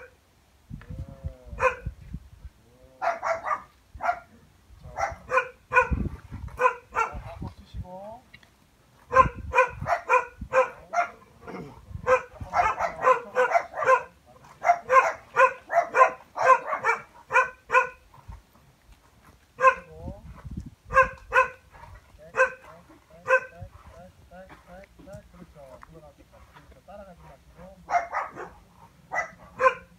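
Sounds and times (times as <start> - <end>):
dog barking: 1.6 - 1.9, 3.0 - 4.3, 4.9 - 6.0, 6.6 - 7.2, 9.1 - 18.0, 19.6 - 19.9, 20.9 - 23.9, 27.3 - 29.9.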